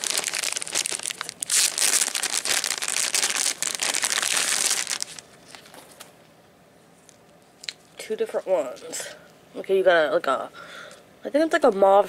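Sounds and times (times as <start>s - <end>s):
tissue paper rustling: 0.0s - 6.0s
plastic bag crinkling: 0.0s - 6.1s.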